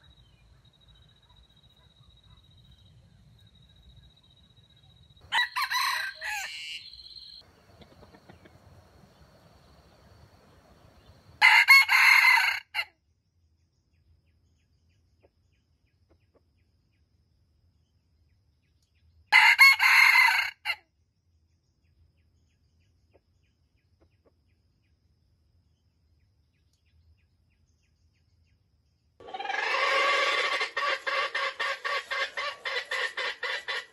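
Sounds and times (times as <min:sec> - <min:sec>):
roosters crowing: 0:05.2 - 0:12.8, 0:19.4 - 0:20.8, 0:29.2 - 0:33.9.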